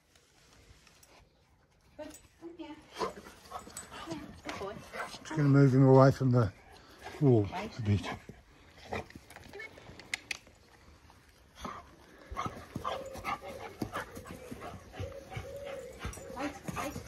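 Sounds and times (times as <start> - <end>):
dogs moving about: 12.4 - 17.0.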